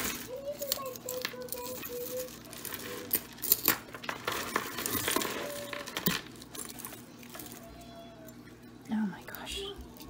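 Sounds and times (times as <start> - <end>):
metal jewelry clinking: 0.0 - 7.6.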